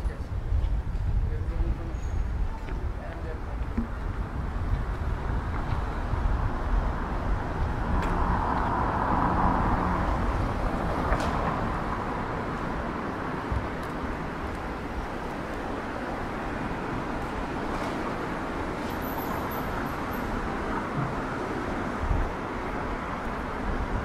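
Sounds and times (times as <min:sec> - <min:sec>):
traffic background: 0:00.0 - 0:24.0
vehicle passing close by: 0:05.2 - 0:14.3.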